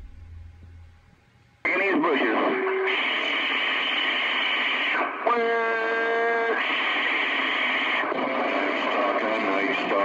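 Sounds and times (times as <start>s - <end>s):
steady buzzing tone: 0.0s - 1.6s
faint garbled radio voices: 1.6s - 10.0s
radio static hiss: 1.7s - 10.0s.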